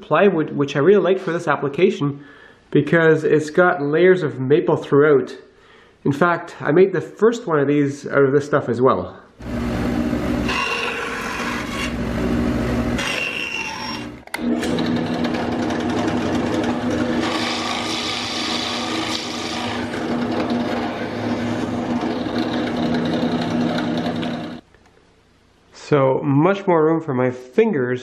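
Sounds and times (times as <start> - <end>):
bandsaw cutting plywood: 9.4 - 24.6
drill press boring wood: 9.4 - 24.6.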